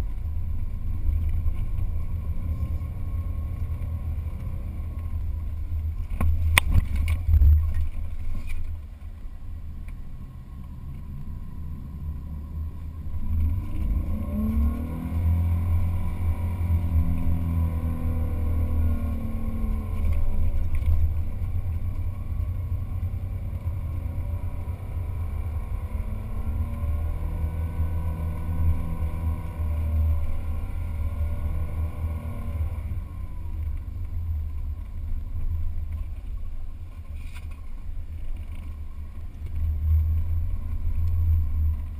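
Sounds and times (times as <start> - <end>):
wind rumble on microphone: 0.0 - 41.9
engine revving: 13.2 - 33.4.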